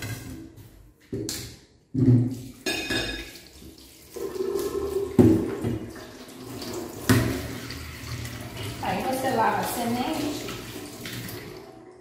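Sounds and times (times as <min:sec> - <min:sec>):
tap running water: 0:02.2 - 0:11.8.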